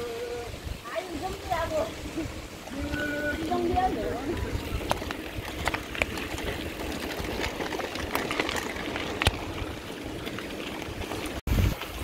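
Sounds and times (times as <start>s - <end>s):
bike tyres rumbling on gravel: 0.0s - 12.0s
bike clicking and rattling: 0.9s - 12.0s.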